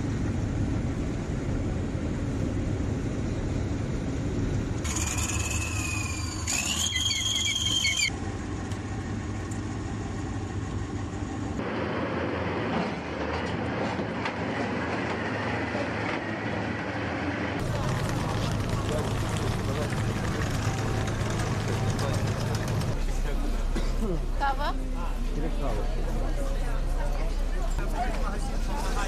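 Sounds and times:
heavy vehicle engines rumbling: 0:00.0 - 0:29.0
high metallic squeal: 0:04.8 - 0:08.1.

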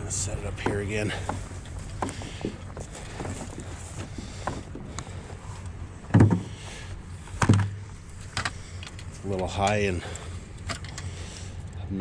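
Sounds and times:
dull thumps: 0:00.0 - 0:09.2
steady low hum: 0:00.0 - 0:12.0.

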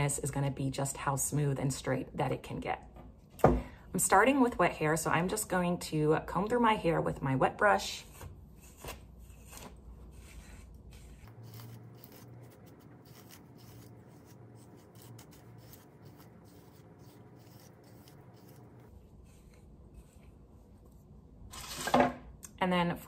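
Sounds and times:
hairbrush rasping through wet hair: 0:09.6 - 0:20.4.

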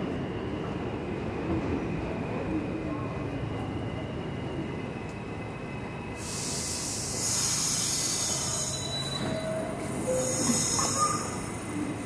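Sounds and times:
subway train low hum: 0:00.0 - 0:12.0
pneumatic air hiss: 0:06.2 - 0:11.7.

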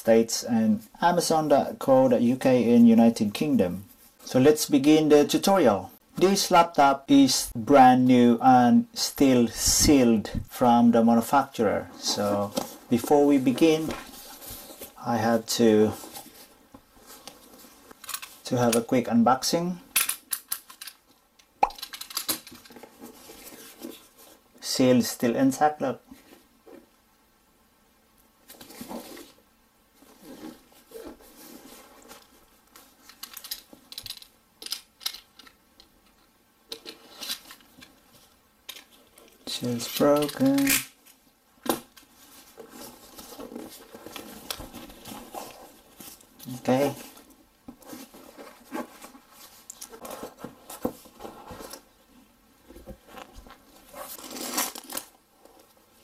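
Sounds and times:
cardboard box rustling: 0:42.2 - 0:51.9.

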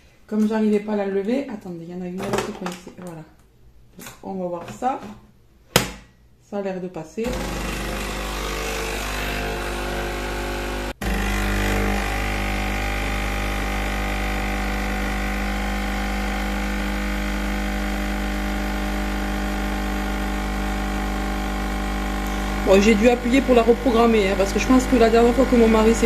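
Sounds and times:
coffee machine pump humming: 0:07.3 - 0:26.0.

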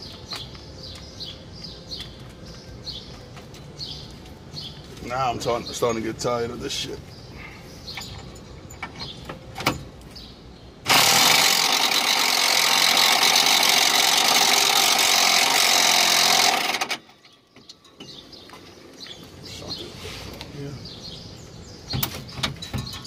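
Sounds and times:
impact wrench running: 0:10.9 - 0:17.0.

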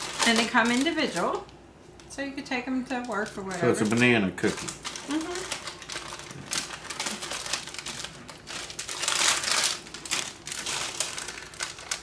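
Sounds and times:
cookie wrapper crinkling: 0:00.0 - 0:12.0.

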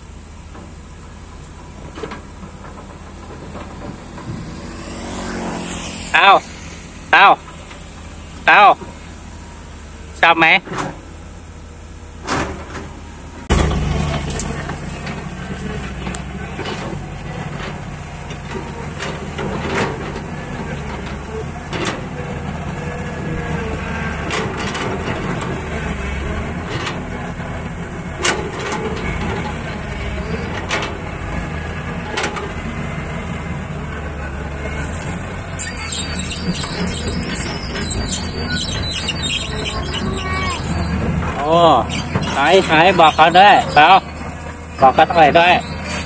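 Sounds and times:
diesel engine running: 0:00.0 - 0:46.0
sharp metallic clanks: 0:13.4 - 0:16.9.

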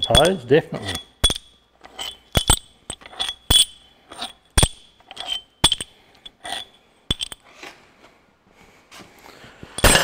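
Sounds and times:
metal bolts clinking together: 0:00.0 - 0:07.4.

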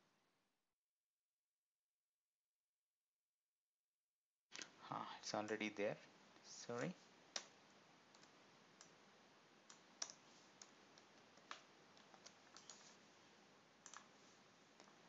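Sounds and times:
keyboard and mouse clicks: 0:07.3 - 0:07.5, 0:09.7 - 0:13.0, 0:13.8 - 0:14.2.

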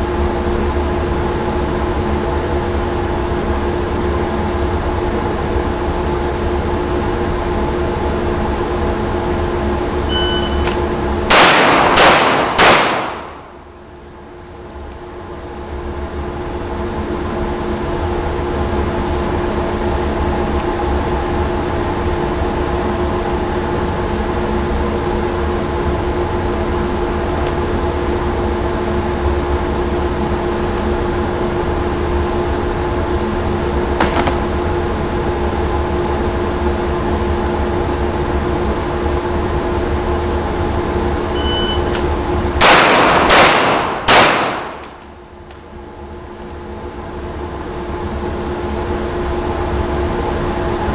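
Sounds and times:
ventilation hum: 0:00.0 - 0:50.9
shot timer beep: 0:10.1 - 0:10.8, 0:41.3 - 0:42.0
pistol shots: 0:10.6 - 0:13.6, 0:42.6 - 0:45.1.

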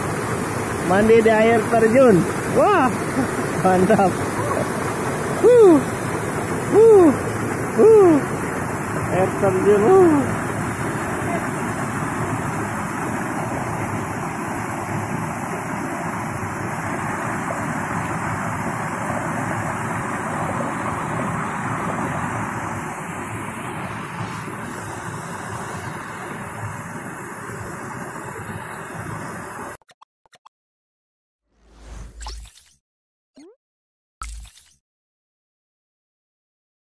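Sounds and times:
water rushing down waterfall: 0:00.0 - 0:29.7.

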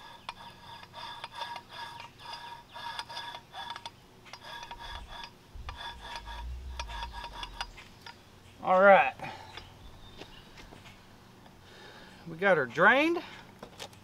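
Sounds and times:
low rumble: 0:04.9 - 0:08.4.

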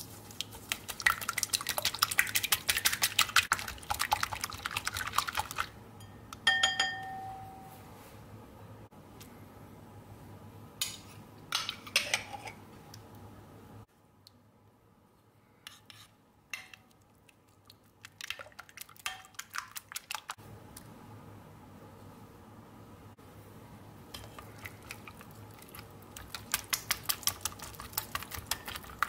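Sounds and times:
spoon clinking in a ceramic bowl: 0:06.0 - 0:07.7.

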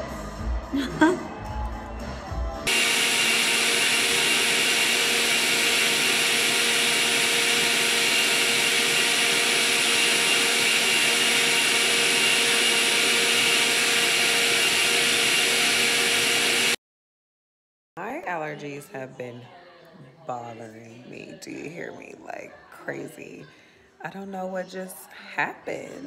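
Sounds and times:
blender motor whine: 0:02.6 - 0:16.8.

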